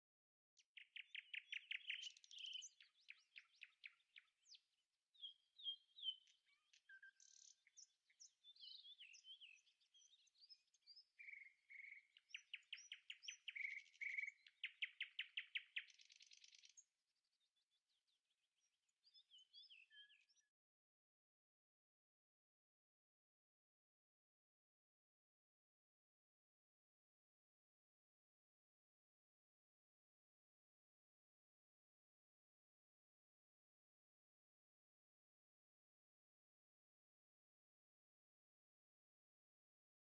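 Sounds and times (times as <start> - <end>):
songbirds singing: 0.6 - 20.6.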